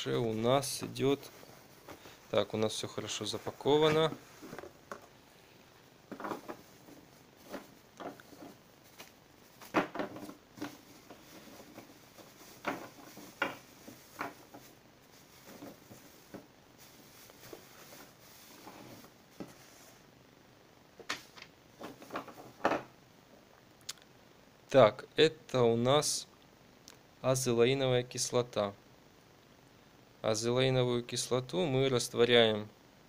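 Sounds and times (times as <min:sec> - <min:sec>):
plastic bag rustling: 0:00.0 - 0:05.4, 0:06.0 - 0:20.1, 0:21.1 - 0:22.8.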